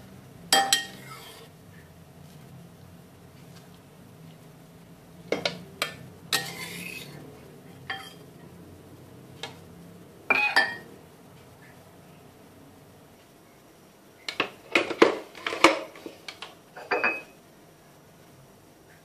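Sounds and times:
ladle scraping pot: 0:00.6 - 0:01.5, 0:05.8 - 0:07.2.

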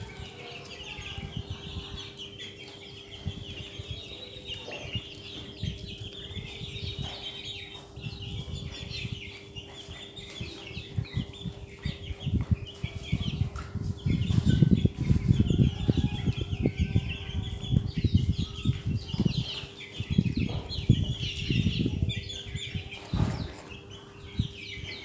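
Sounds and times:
chicks peeping and chirping: 0:00.0 - 0:25.0
low thumps and knocks: 0:17.4 - 0:22.1.

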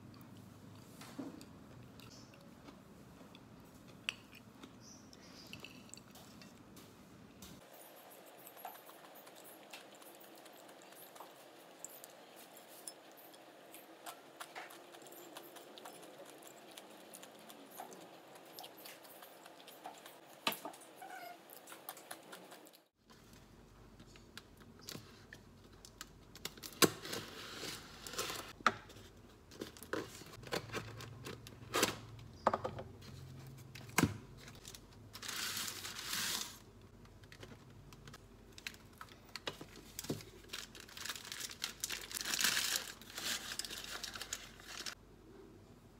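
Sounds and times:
paper wrappers rustling: 0:34.4 - 0:45.0.

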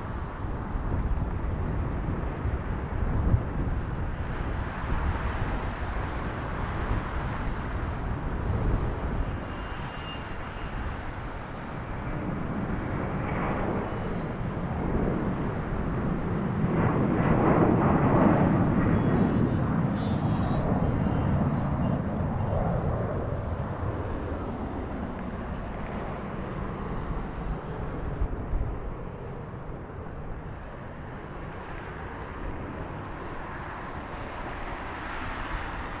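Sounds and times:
jet engine rumble: 0:00.0 - 0:36.0
high jet whine: 0:05.6 - 0:29.8.

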